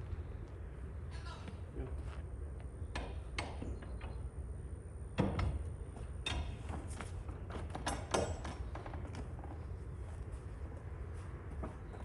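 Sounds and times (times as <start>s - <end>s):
sharp knocks and clunks: 2.9s - 4.2s, 5.1s - 9.4s.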